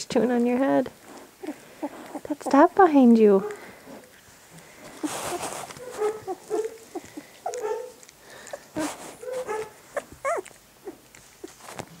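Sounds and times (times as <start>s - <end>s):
puppies whimpering and squeaking: 1.0s - 2.6s, 3.4s - 11.8s.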